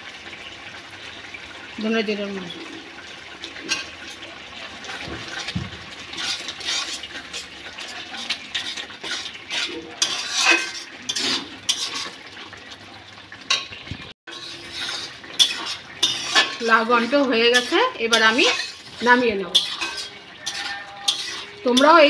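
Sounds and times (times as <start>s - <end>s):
metal spatula scraping a pot: 3.6s - 4.3s, 4.9s - 12.5s, 14.3s - 22.0s.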